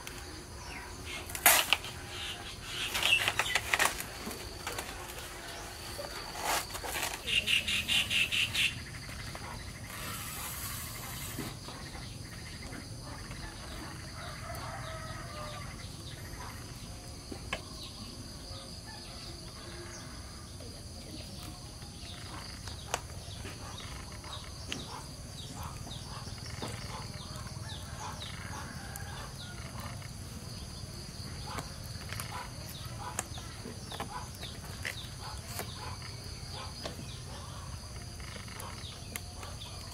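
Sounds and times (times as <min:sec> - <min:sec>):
bird calls: 0:00.0 - 0:16.8, 0:22.1 - 0:30.4
leaves crackling as cut: 0:01.1 - 0:08.3, 0:09.8 - 0:11.6, 0:31.5 - 0:36.0.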